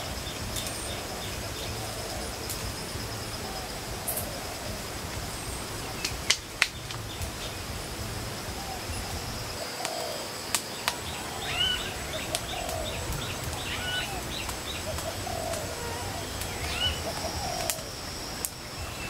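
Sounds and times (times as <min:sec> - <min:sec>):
sharp snaps: 0:06.0 - 0:07.6, 0:09.6 - 0:18.8
bird hooting: 0:08.6 - 0:19.0.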